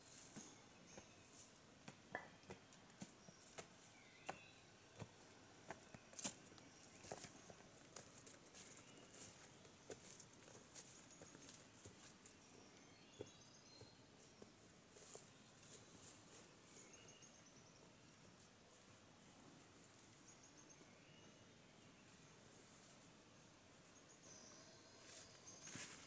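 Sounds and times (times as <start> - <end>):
footsteps crunching through dry leaves: 25.1 - 26.0.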